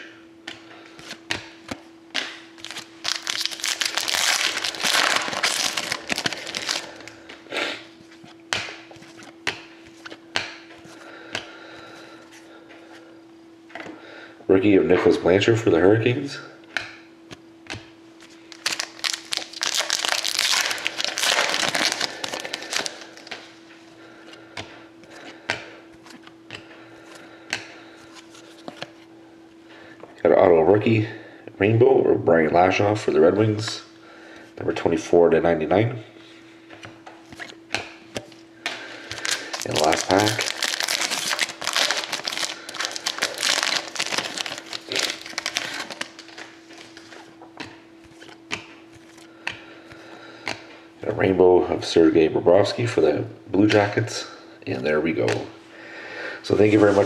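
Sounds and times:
wrapper crinkling as torn open: 2.6 - 7.2, 18.5 - 23.4, 39.0 - 47.2.

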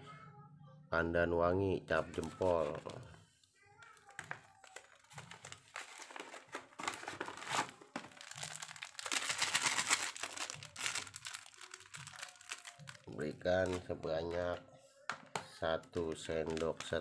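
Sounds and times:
plastic sachet crinkling and tearing: 3.8 - 14.4, 15.9 - 17.0.

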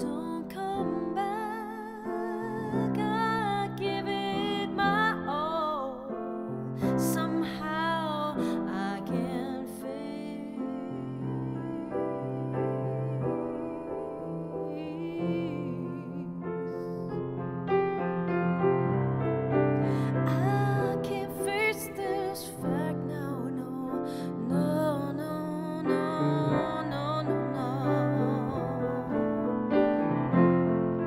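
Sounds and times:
grand piano playing: 0.0 - 31.0.

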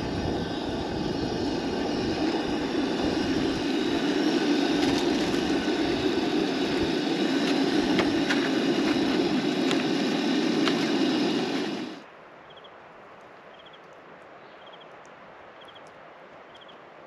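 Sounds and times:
camp stove burner roaring: 0.0 - 12.0.

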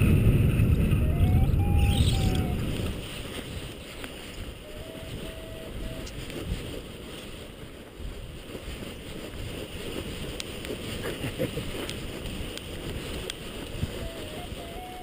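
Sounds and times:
wind buffeting microphone: 0.0 - 15.0
faint clicks: 11.8 - 13.8.

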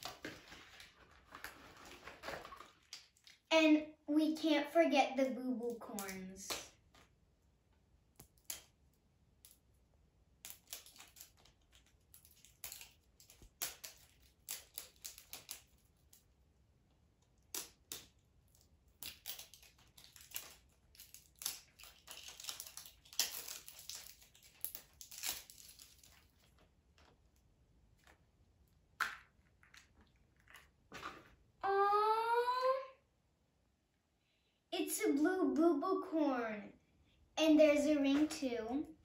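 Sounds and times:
crinkling rustles: 0.0 - 3.5, 18.5 - 28.2.

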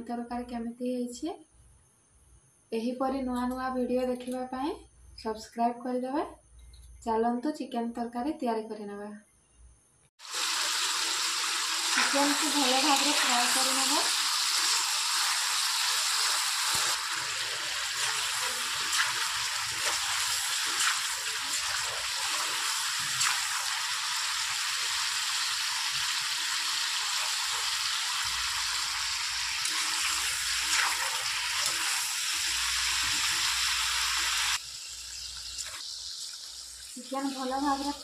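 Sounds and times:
chicken frying in hot oil: 10.2 - 38.0.

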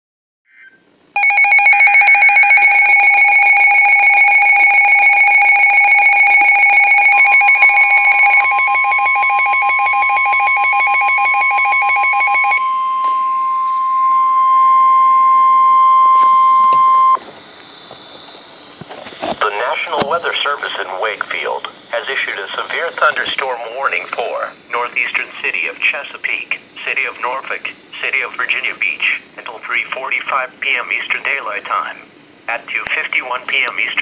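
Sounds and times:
rapid pulsing alarm beep: 1.2 - 17.2
steady alarm tone: 1.2 - 17.2.

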